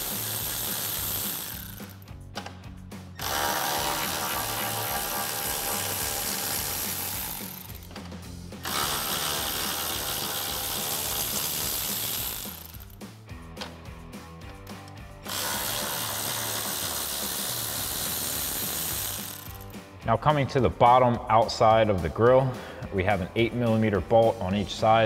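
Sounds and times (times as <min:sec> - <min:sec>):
cordless ratchet running: 0:00.0 - 0:02.1, 0:03.2 - 0:13.1, 0:15.2 - 0:19.8.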